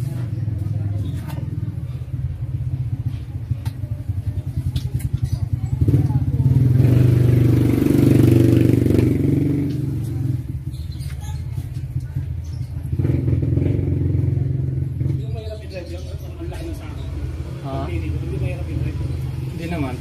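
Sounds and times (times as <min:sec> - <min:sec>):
three-wheeler engine revving: 0:04.0 - 0:11.0, 0:11.9 - 0:20.0.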